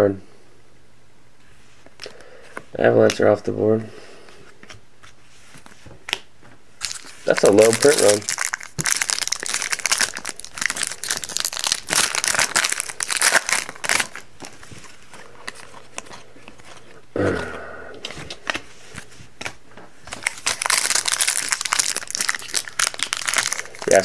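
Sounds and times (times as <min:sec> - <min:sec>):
wrappers tearing and crinkling: 0:06.8 - 0:17.0, 0:20.1 - 0:24.0.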